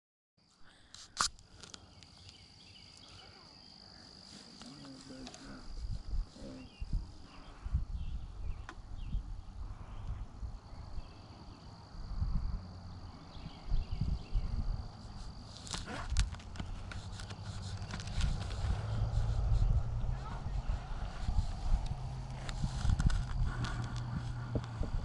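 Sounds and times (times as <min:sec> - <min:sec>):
high-pitched insect trill: 0:01.2 - 0:08.4
low thumps and rumble: 0:17.9 - 0:25.0.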